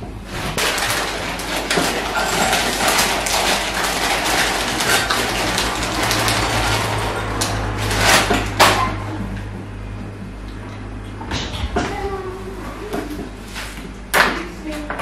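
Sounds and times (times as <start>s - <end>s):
steady low hum: 0.0s - 15.0s
plastic bag crinkling: 0.6s - 8.7s.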